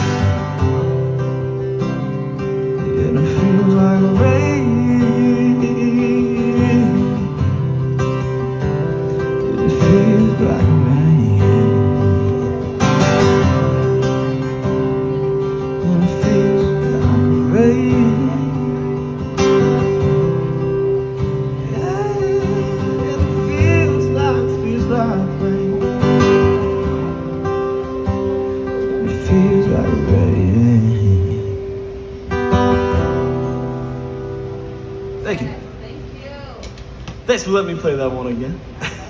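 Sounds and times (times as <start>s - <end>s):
acoustic guitar strumming: 0.0s - 39.0s
man singing: 2.4s - 7.8s, 9.0s - 14.1s, 15.1s - 20.8s, 21.5s - 26.8s, 28.8s - 31.9s.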